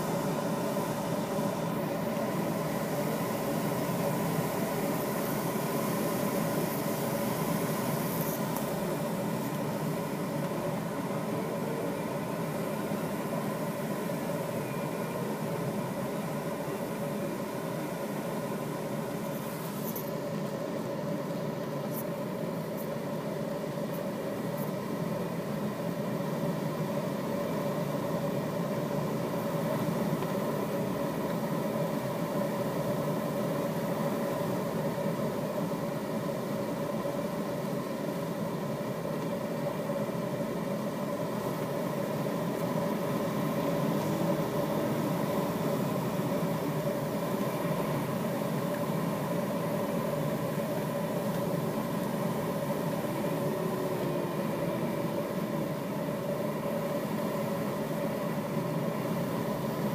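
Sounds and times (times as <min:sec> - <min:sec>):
rush of airflow in cockpit: 0:00.0 - 0:59.9
whistling hum: 0:14.3 - 0:15.8.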